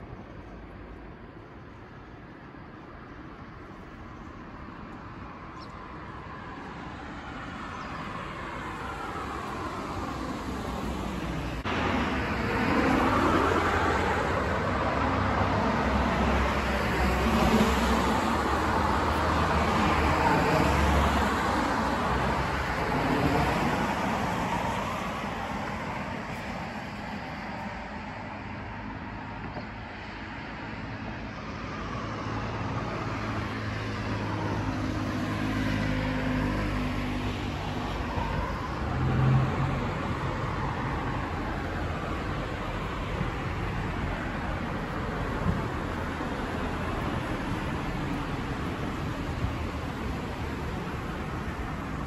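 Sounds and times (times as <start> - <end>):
cars passing: 0.0 - 52.0
vehicle engine hum: 7.6 - 52.0.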